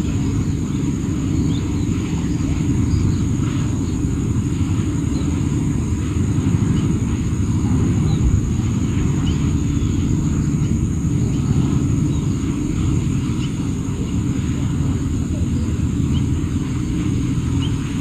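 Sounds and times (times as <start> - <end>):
thin high-pitched hum: 0.0 - 18.0
wind buffeting microphone: 0.0 - 18.0.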